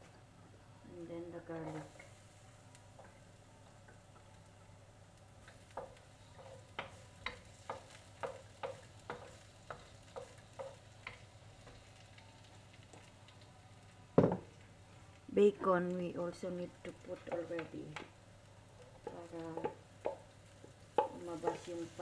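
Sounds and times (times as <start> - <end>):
oil sizzling: 1.0 - 22.0
wooden spoon scraping a wok: 5.4 - 11.9, 20.5 - 22.0.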